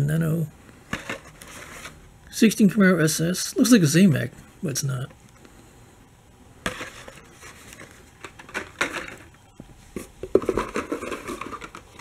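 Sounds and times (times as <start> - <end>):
plastic packs clicking and rustling: 6.7 - 9.4, 10.2 - 12.0.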